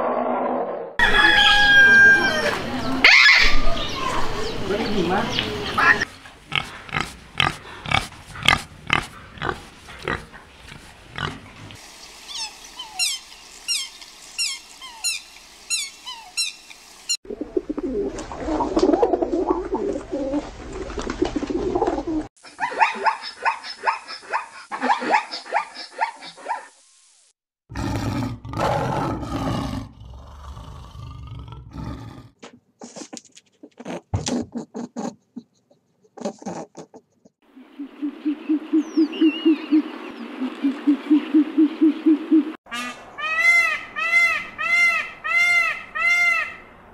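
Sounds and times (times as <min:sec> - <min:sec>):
pigeons cooing: 0:17.3 - 0:25.2, 0:37.7 - 0:42.6.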